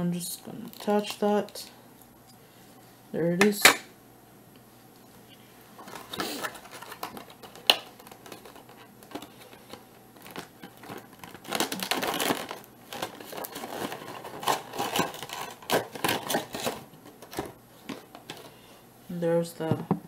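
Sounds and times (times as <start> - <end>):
packaging crinkling: 5.8 - 18.6.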